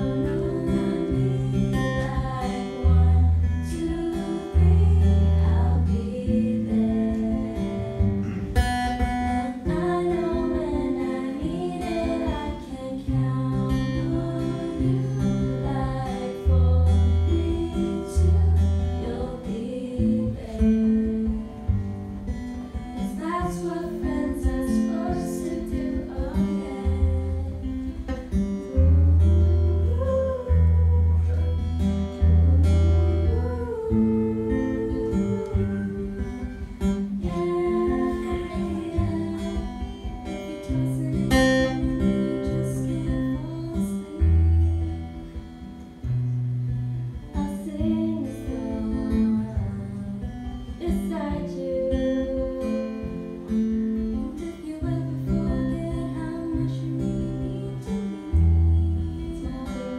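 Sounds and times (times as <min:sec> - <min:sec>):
women singing: 0:00.0 - 0:46.1, 0:47.1 - 0:59.9
acoustic guitar chords: 0:00.0 - 0:59.9.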